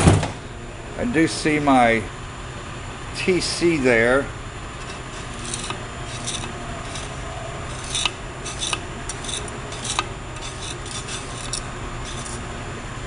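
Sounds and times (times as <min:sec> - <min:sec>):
scraper blade scraping metal: 0:04.8 - 0:12.5.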